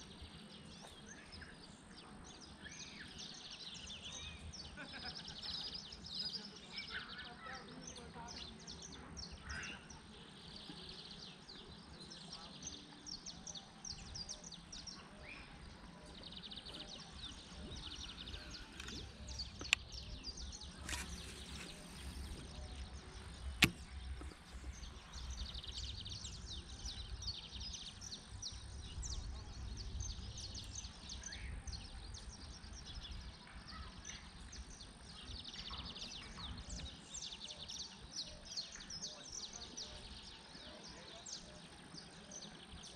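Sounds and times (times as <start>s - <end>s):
birds chirping: 0.0s - 42.9s
sharp clicks: 17.4s - 25.7s
wind rumble on microphone: 21.6s - 33.6s.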